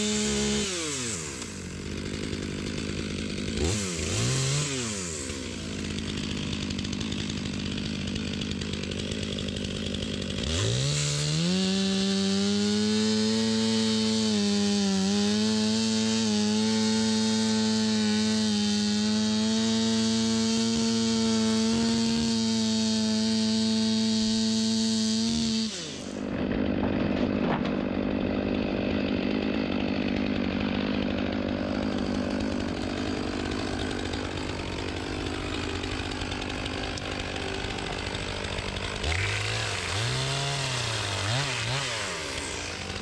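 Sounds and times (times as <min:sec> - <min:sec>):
chainsaw cutting wood: 0:00.0 - 0:43.0
chainsaw idling and revving: 0:00.0 - 0:43.0.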